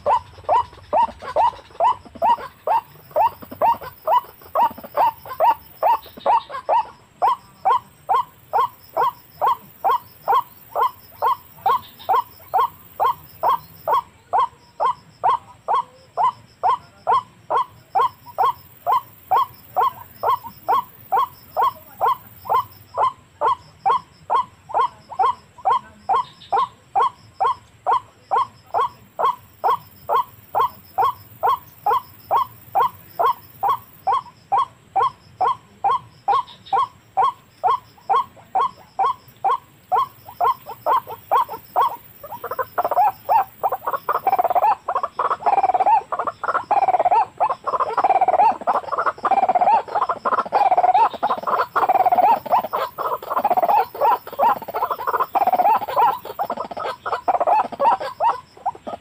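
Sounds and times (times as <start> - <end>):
waterhen call: 0.0 - 59.0.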